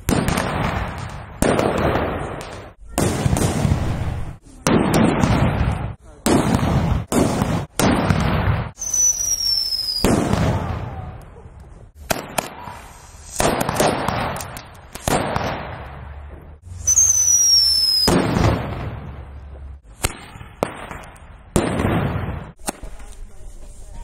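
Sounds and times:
sharp firework bangs: 0.0s - 11.2s, 11.9s - 22.9s
fireworks hissing and crackling: 0.0s - 24.0s
thin falling whistles: 8.8s - 10.1s, 16.8s - 18.1s.

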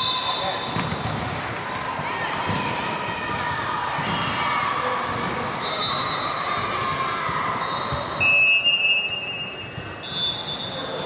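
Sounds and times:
referee whistles blowing: 0.0s - 0.9s, 7.6s - 10.9s
din of sports hall: 0.0s - 11.0s.

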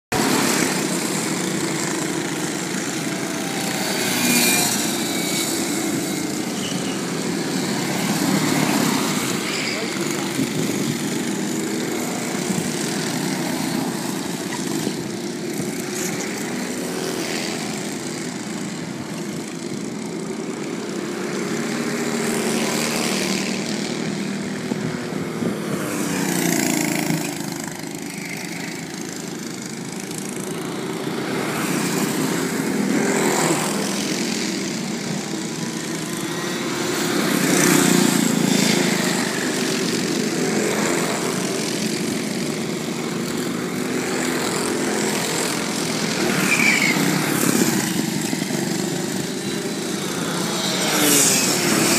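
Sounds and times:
kart engines buzzing: 0.1s - 51.9s.

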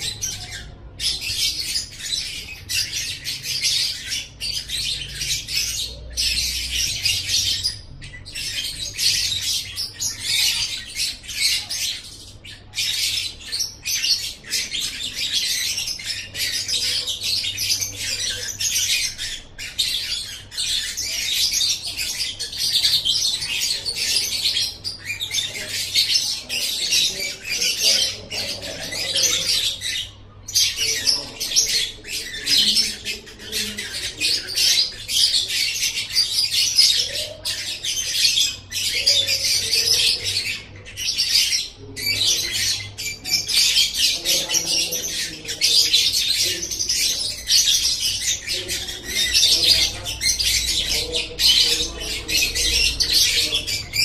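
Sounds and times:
bird chattering song: 0.0s - 54.0s.

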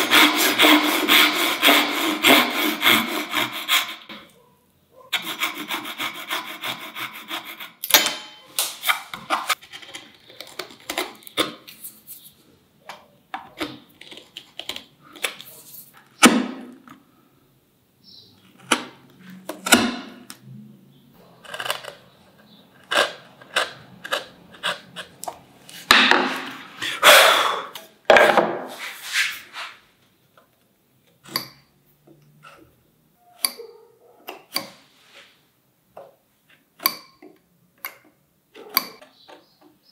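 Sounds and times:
pull saw rasping through wood: 0.0s - 4.1s, 5.2s - 7.8s
marking knife scratching wood: 0.0s - 4.2s, 5.1s - 7.8s, 8.8s - 12.4s, 21.4s - 27.0s
chisel scraping wood: 0.0s - 4.3s, 5.2s - 7.9s, 21.2s - 27.0s.

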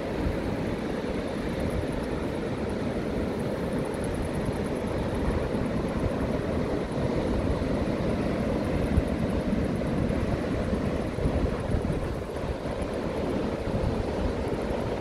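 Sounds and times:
wind buffeting microphone: 3.6s - 15.0s.

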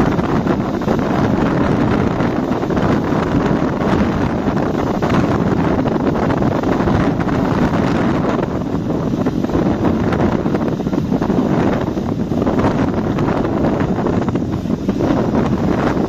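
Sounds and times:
low rush of boat and water: 0.0s - 16.0s
wind buffeting microphone: 0.0s - 16.0s.

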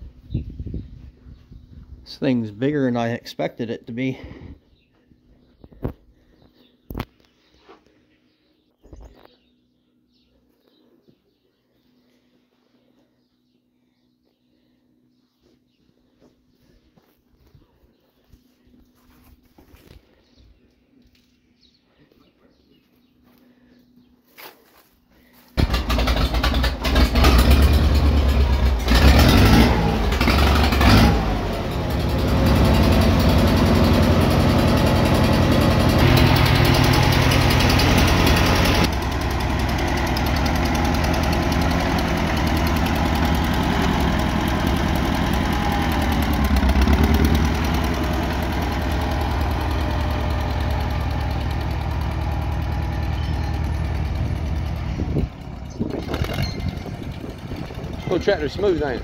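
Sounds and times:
tractor engine revving and running: 25.6s - 59.0s.

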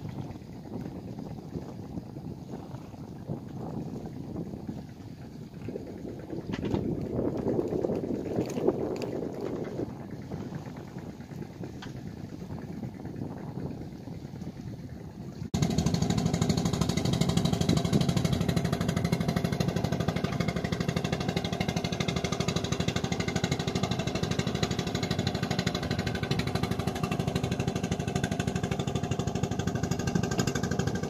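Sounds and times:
boat engine running: 0.0s - 31.0s.

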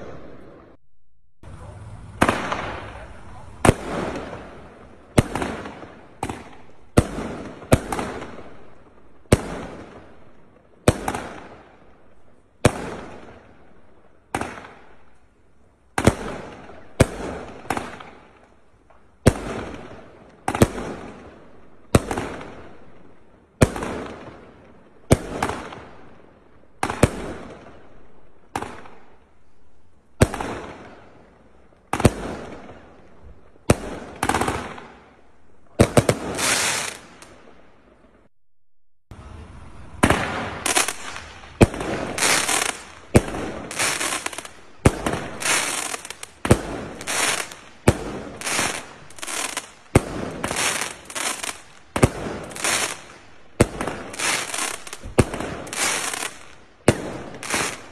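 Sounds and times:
firework barrage bangs: 1.6s - 8.6s, 39.9s - 53.0s.

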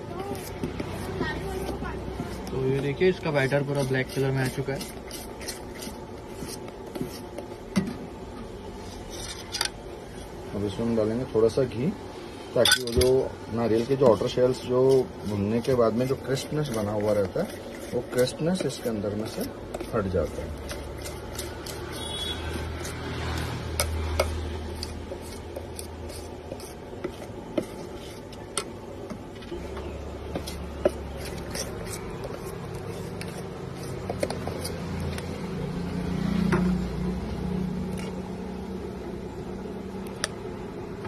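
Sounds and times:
spoon stirring thick batter: 0.0s - 11.9s, 12.5s - 36.0s
spoon tapping and scraping pot: 13.9s - 29.2s, 29.8s - 35.3s.

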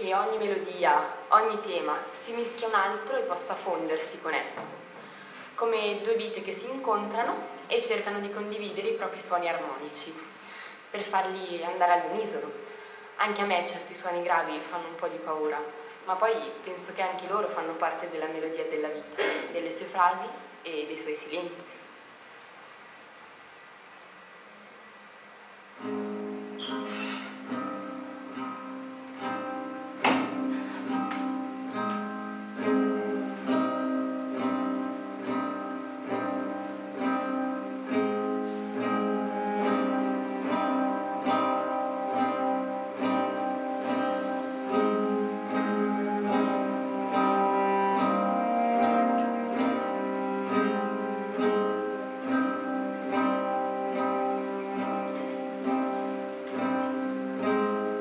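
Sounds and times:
acoustic guitar picking: 25.8s - 58.0s.

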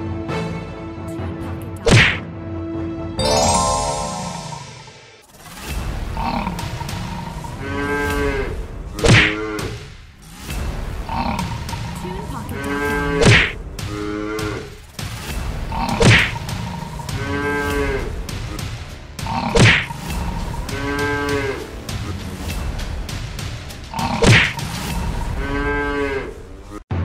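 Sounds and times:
cartoon cattle mooing: 25.4s - 26.4s.

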